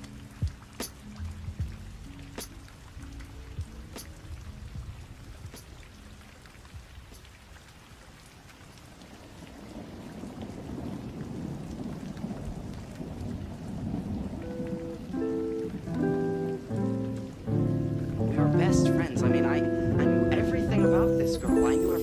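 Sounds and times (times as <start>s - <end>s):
rain falling: 0.0s - 22.0s
low rumble of thunder: 9.3s - 16.1s.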